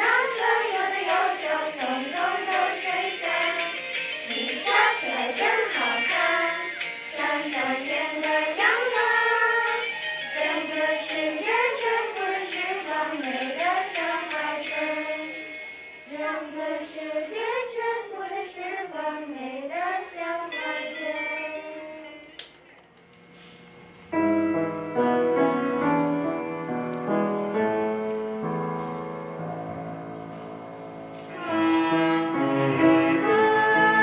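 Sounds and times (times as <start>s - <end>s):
children singing: 0.0s - 15.4s, 16.1s - 21.9s, 31.2s - 34.0s
instrumental backing with steady beat: 0.0s - 16.1s.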